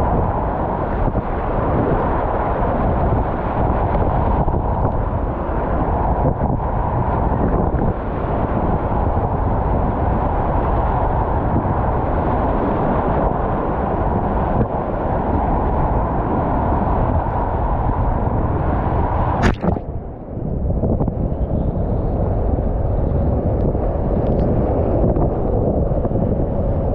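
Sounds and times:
rapids rushing and churning: 0.1 - 23.4
sharp splash: 19.4 - 20.1.

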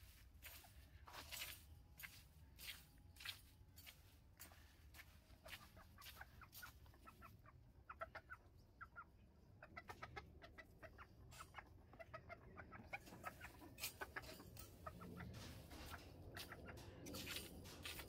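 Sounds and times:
hen clucking softly: 5.4 - 16.8.

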